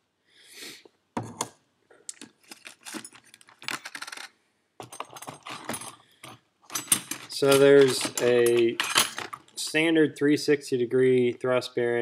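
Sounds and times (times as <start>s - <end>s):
small metal parts clinking: 2.1s - 9.6s.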